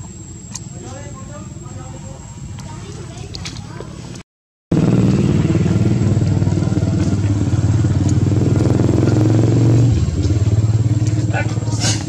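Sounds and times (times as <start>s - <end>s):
small motorcycle engine running: 4.7s - 12.0s.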